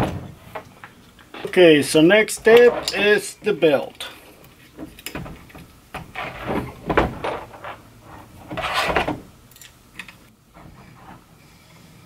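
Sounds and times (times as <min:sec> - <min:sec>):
rubbing scrape: 0:07.6 - 0:09.1.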